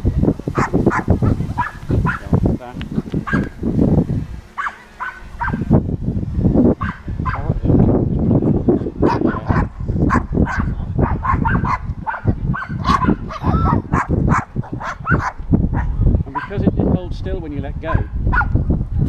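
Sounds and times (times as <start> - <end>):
steady low rumble: 0.0 - 19.0
dog barking and yelping: 0.6 - 2.3, 3.2 - 3.6, 4.6 - 5.7, 6.8 - 7.5, 9.0 - 16.5.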